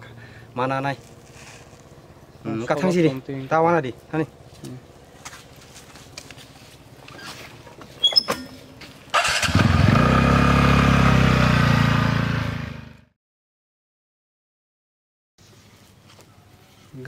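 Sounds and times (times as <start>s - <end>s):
motor scooter engine running: 9.1s - 13.1s.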